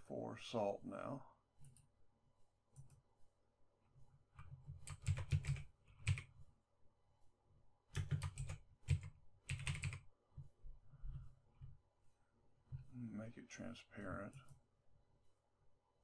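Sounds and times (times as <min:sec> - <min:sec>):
typing on computer keyboard: 0:04.4 - 0:06.4, 0:07.9 - 0:10.0.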